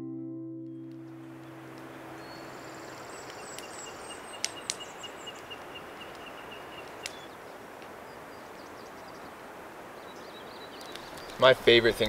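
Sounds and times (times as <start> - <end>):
birds peeping: 0.9 - 12.0
steady outdoor hiss: 0.9 - 12.0
high bird chirps: 1.0 - 11.4
sharp clicks: 2.9 - 7.9, 10.8 - 11.4.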